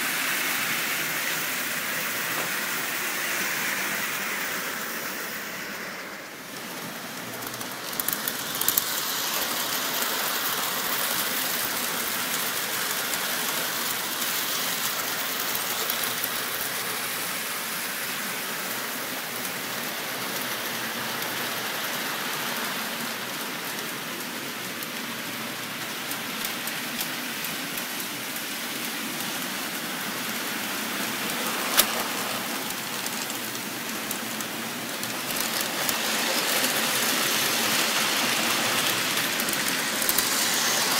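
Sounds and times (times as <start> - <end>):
toy train wheels rattling on rails: 0.0 - 40.9
sharp clicks of wheels on rail joints: 0.1 - 40.9.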